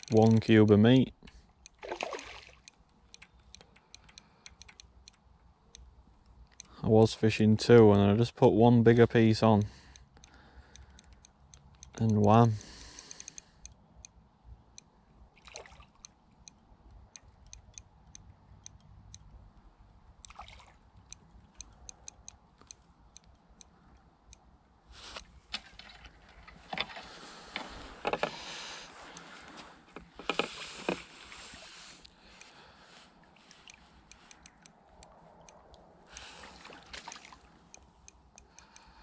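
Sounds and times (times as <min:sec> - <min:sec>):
light ticks: 0:00.0 - 0:08.3, 0:09.4 - 0:14.9, 0:15.9 - 0:24.5, 0:29.0 - 0:39.0
water splashing and sloshing: 0:01.3 - 0:02.9, 0:15.3 - 0:16.2, 0:20.2 - 0:21.6, 0:25.2 - 0:37.8.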